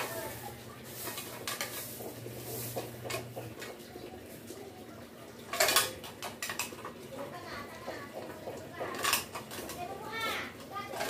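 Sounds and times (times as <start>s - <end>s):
metal pot clinks and scrapes: 0.0s - 3.8s, 5.4s - 7.0s, 7.8s - 11.0s.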